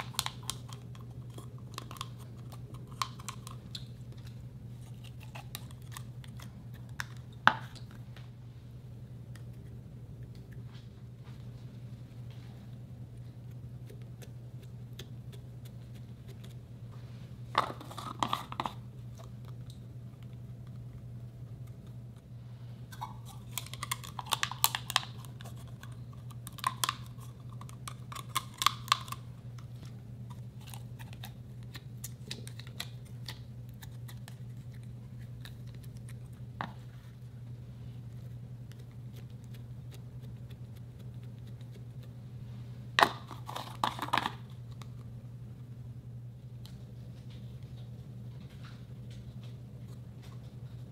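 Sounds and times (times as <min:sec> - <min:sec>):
low hum: 0:00.0 - 0:50.9
slime clicking and crackling: 0:23.2 - 0:29.7.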